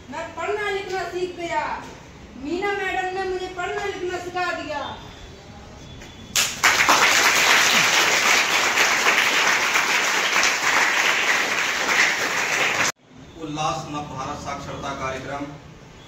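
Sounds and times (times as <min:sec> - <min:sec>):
children applauding: 0:06.4 - 0:13.0.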